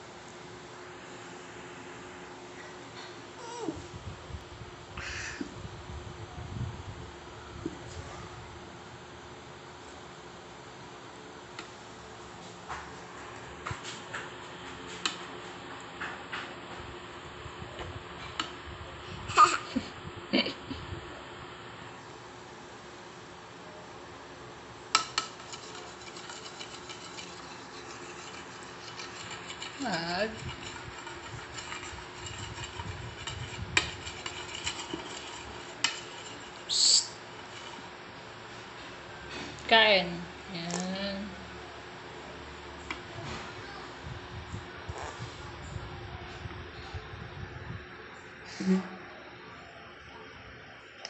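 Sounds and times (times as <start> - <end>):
metal spoon clinking against bowl: 25.0 - 36.7.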